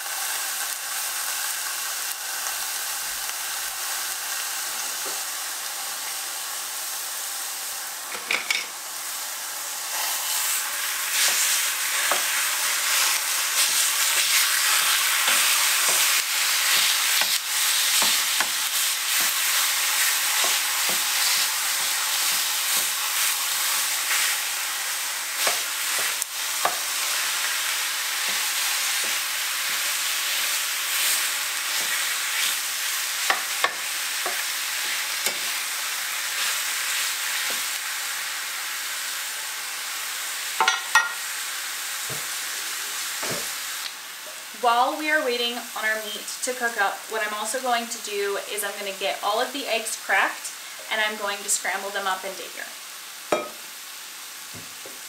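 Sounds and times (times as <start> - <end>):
sausage sizzling in a skillet: 0.0 - 55.0
spatula scraping a pan: 9.9 - 24.4, 25.4 - 35.7.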